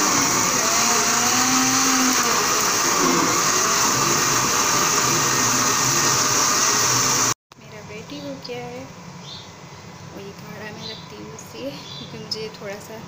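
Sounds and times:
electric blender running: 0.0s - 7.4s.

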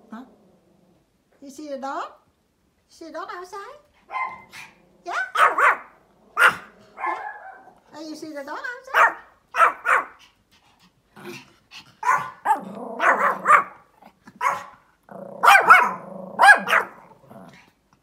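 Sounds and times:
small dog barking: 4.1s - 7.8s, 8.9s - 10.2s, 12.0s - 14.8s, 15.4s - 17.2s.

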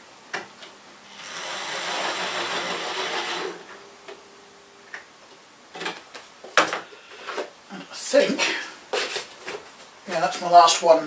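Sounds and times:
model train buzzing and clattering: 1.2s - 3.7s.

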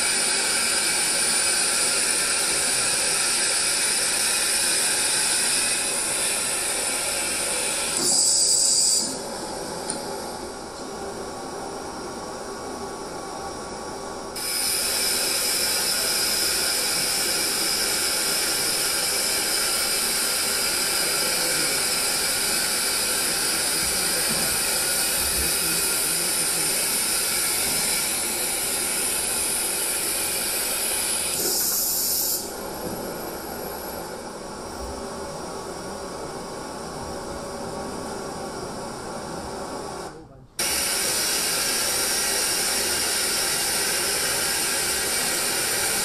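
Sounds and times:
steady hiss: 14.3s - 38.7s, 40.6s - 46.0s.

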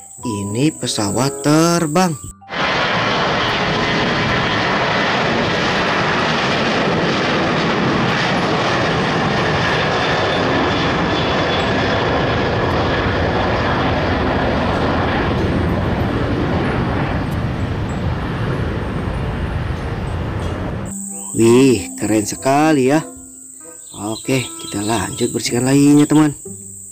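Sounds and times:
jet engines at takeoff: 2.2s - 20.9s.

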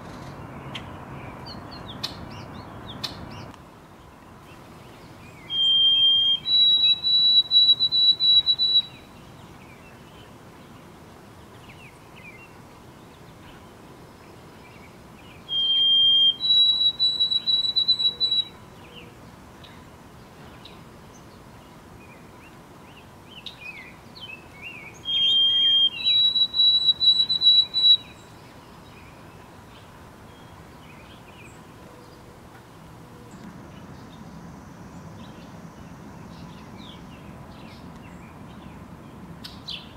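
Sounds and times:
faint bird chirps: 4.5s - 10.4s, 11.6s - 19.8s, 22.1s - 32.6s
sparrow whistled song: 5.2s - 10.3s, 14.6s - 19.8s, 22.0s - 31.6s.

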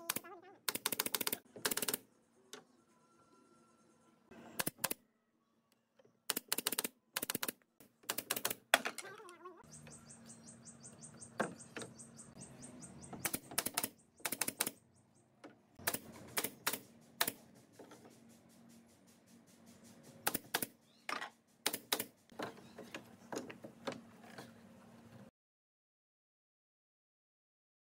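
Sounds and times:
nail gun firing: 0.0s - 2.0s, 4.6s - 5.0s, 6.3s - 9.0s, 13.2s - 14.8s, 15.8s - 17.4s, 20.2s - 20.7s, 21.6s - 22.2s.

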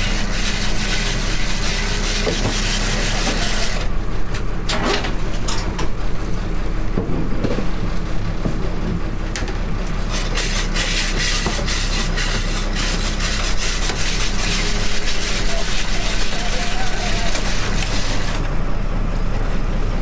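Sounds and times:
boat engine humming: 7.7s - 20.0s.

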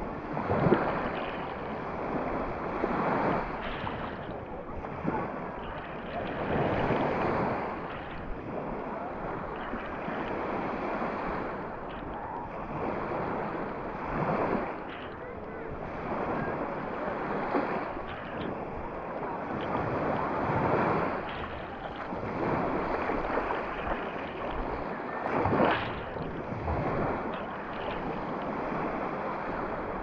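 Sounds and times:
small waves washing over sand: 0.0s - 30.0s
water splash: 17.5s - 30.0s.

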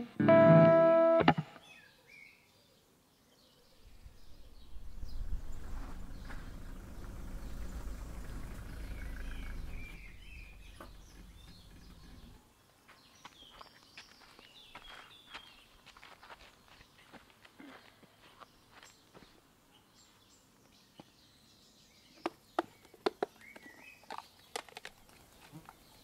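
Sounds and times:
low street rumble: 4.4s - 12.4s.

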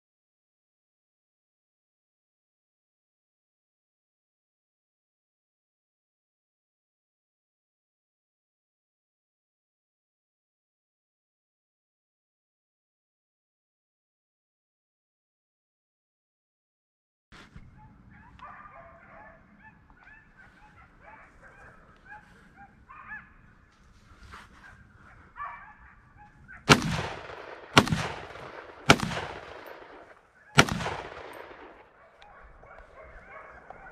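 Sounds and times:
distant dogs barking and baying: 17.4s - 33.9s
shotgun blasts echoing: 26.6s - 32.1s.

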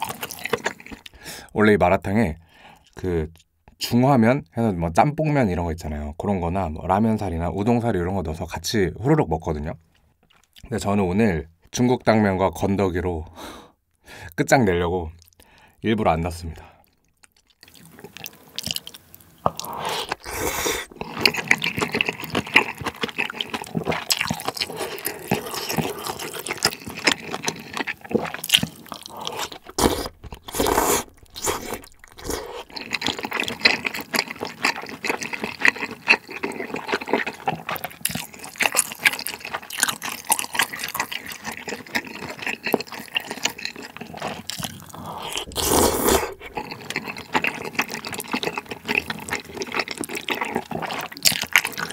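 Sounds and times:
wet chewing mouth sounds: 0.0s - 1.2s, 16.8s - 51.9s
noodle slurps: 19.5s - 51.9s.

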